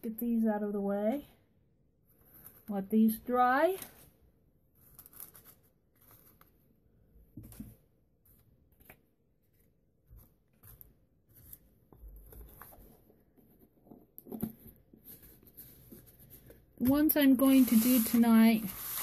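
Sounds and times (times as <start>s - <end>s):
paper rustles: 15.1s - 19.0s.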